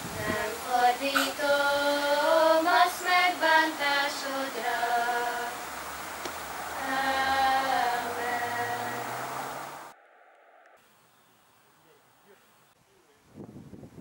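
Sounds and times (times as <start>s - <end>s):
girls singing unaccompanied: 0.0s - 9.7s.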